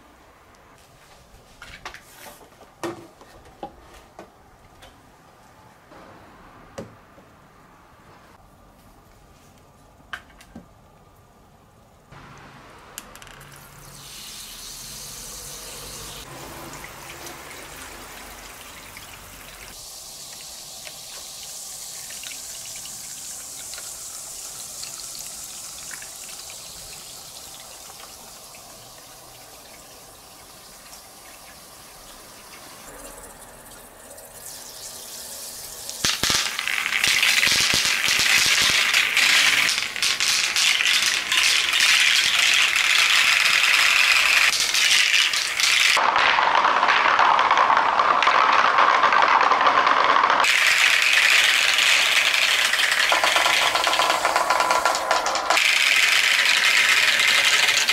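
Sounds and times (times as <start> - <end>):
shower water spraying into gutter: 13.6 - 32.9, 33.7 - 49.5, 50.3 - 57.9
plastic balls clattering: 36.0 - 57.9.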